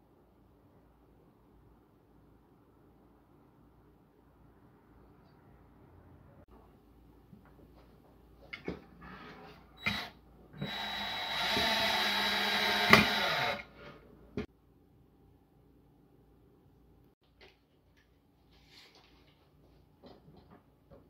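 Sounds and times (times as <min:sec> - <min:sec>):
cordless drill boring into wood: 0:09.8 - 0:13.7.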